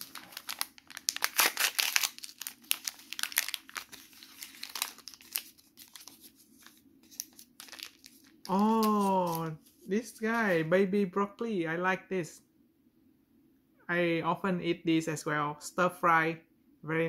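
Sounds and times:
plastic packet tearing and crinkling: 0.0s - 9.5s.

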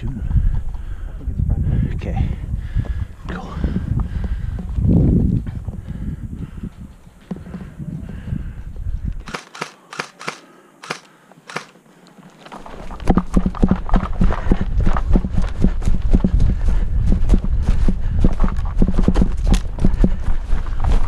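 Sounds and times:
quick footsteps: 2.7s - 21.0s
airsoft gunfire snaps: 9.2s - 11.8s.

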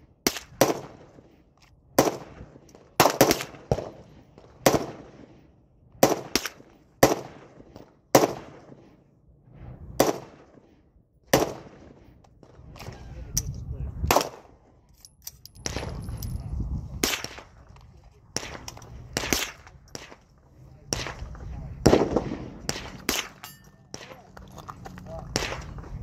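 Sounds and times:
pistol shots echoing: 21.8s - 24.2s.

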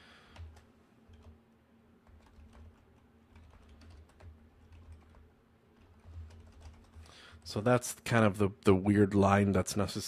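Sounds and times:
low steady hum: 0.0s - 10.0s
typing on computer keyboard: 0.3s - 1.4s, 2.0s - 7.5s.

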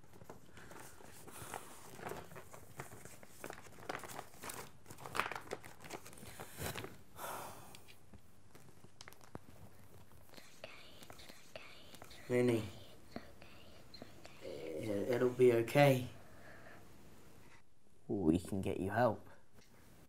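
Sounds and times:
paper in plastic sleeve crinkling: 0.0s - 6.9s.

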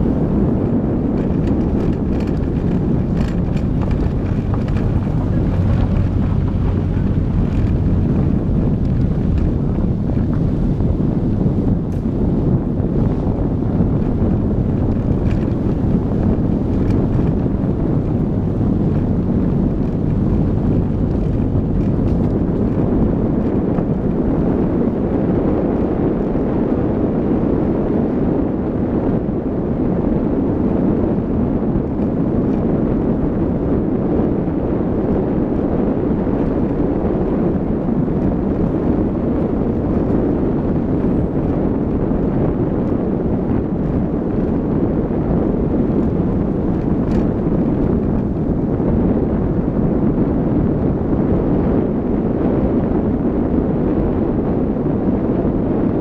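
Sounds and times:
tyres on loose gravel: 0.0s - 10.9s
car engine: 0.0s - 26.4s, 36.2s - 50.0s
wind buffeting microphone: 0.0s - 56.0s.

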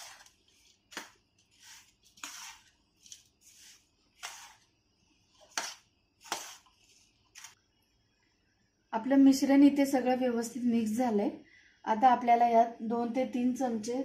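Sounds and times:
hand stirring dry mixture: 0.0s - 7.6s.

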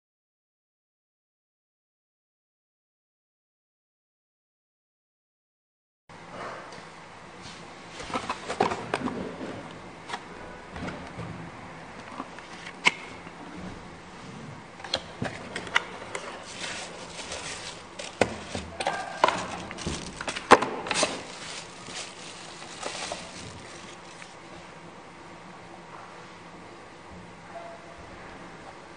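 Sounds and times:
bubble wrap crinkling: 16.4s - 24.4s.

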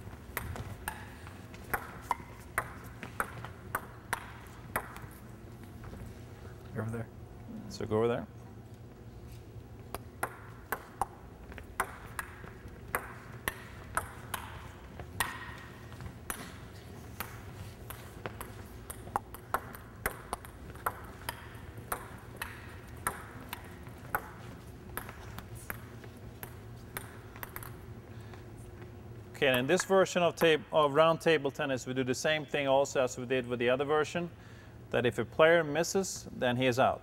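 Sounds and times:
ball bouncing on table: 0.3s - 5.1s, 9.9s - 27.8s.

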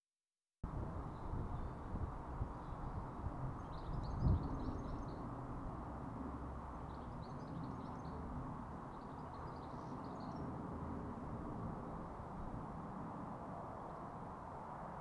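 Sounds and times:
small bird chirping: 3.6s - 5.3s, 6.8s - 8.2s, 8.9s - 10.5s.

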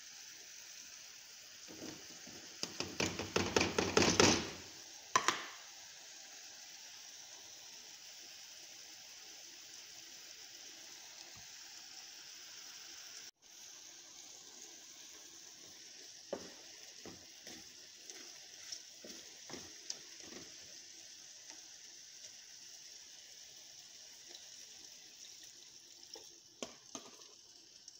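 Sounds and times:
food sizzling in a pan: 0.0s - 27.9s
wooden spoon scraping a pan: 16.3s - 20.8s.

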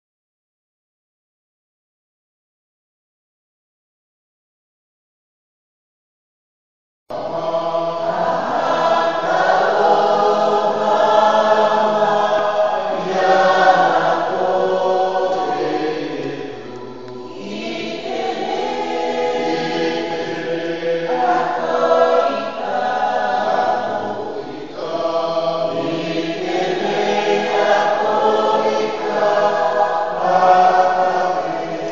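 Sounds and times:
congregation singing a hymn: 7.1s - 31.9s.

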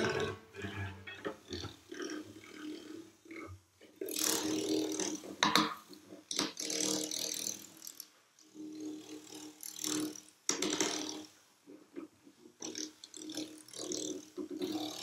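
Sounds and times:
stick scraping cello body: 0.0s - 3.0s.

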